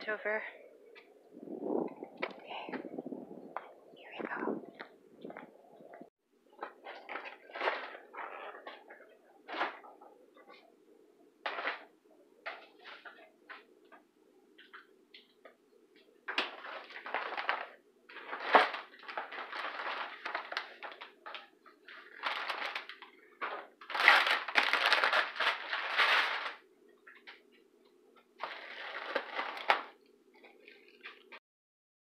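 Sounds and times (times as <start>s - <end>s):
packaging rustling and crinkling: 6.6s - 9.9s, 16.3s - 27.4s, 28.4s - 31.4s.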